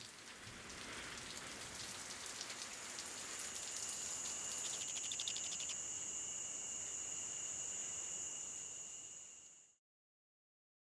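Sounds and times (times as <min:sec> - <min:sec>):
rain falling: 0:00.0 - 0:05.8
steady high-pitched tone: 0:04.4 - 0:09.8.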